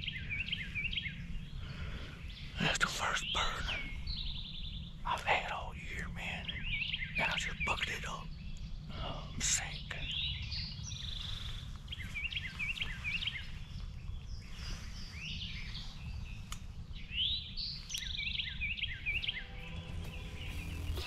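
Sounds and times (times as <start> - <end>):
songbirds singing: 0.0 - 21.0
low rumble: 18.6 - 21.0.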